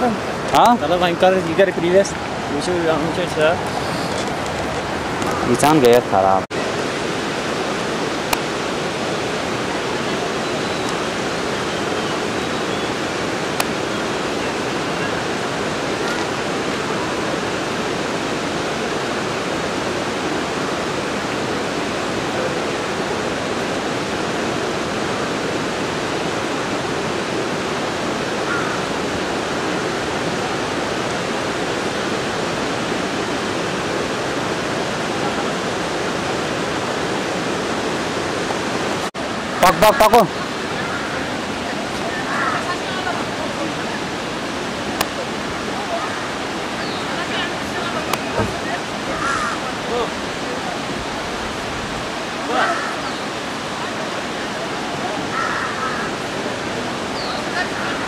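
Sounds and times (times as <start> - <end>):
steady rushing noise: 0.0 - 58.0.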